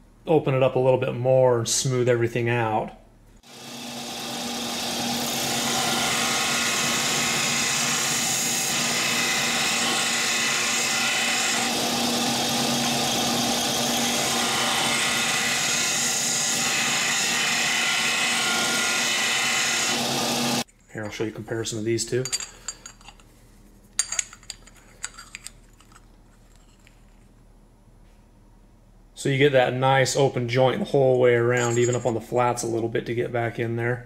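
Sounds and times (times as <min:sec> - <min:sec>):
bench sander grinding metal tube: 0:03.5 - 0:20.7.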